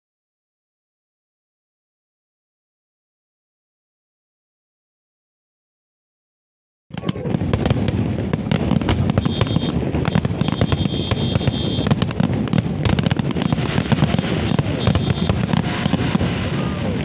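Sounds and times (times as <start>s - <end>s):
fireworks bursting and crackling: 6.9s - 17.0s.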